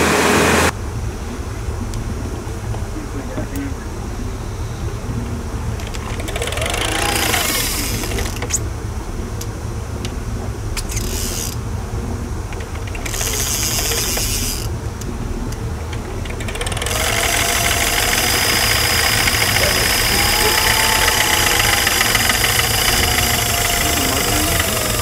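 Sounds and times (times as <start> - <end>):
boat engine running: 0.0 - 25.0
high whirring of fishing gear: 0.0 - 25.0
sharp clicks: 12.5 - 25.0.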